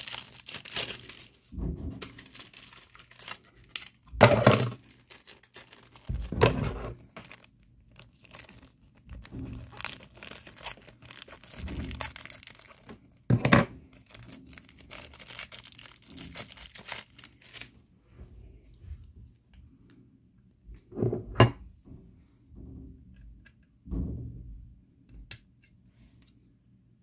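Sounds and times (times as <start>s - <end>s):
plastic wrapping crinkling: 0.0s - 17.8s.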